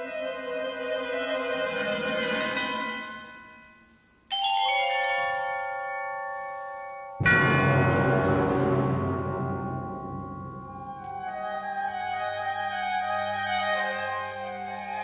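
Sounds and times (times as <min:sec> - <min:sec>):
bell-like mallet percussion chord: 0:02.4 - 0:11.2
wind band playing: 0:10.7 - 0:15.0.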